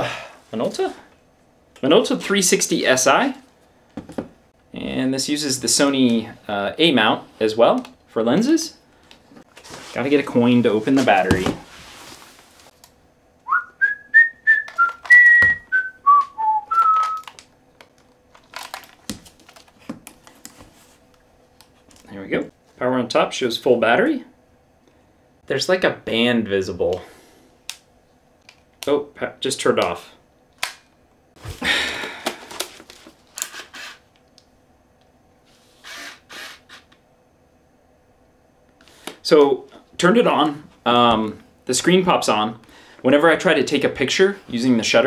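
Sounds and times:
person whistling a tune: 0:13.5 - 0:17.3.

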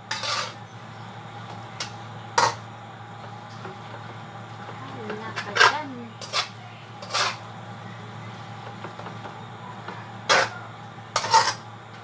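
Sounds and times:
steady low hum: 0:00.0 - 0:12.0
kitchen clatter at stove: 0:01.8 - 0:02.7, 0:03.5 - 0:07.4, 0:08.6 - 0:12.0.

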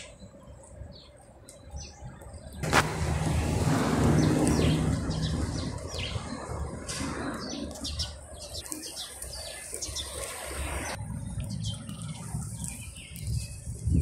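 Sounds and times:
small birds chirping: 0:00.0 - 0:02.7, 0:04.0 - 0:14.0.

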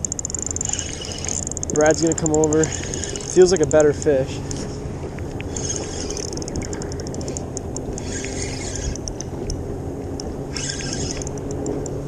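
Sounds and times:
fishing reel buzz: 0:00.0 - 0:04.6, 0:05.5 - 0:09.3, 0:10.5 - 0:11.9
fishing reel clicking: 0:00.0 - 0:04.6, 0:05.4 - 0:09.6, 0:10.2 - 0:12.0
wind: 0:00.0 - 0:12.0.

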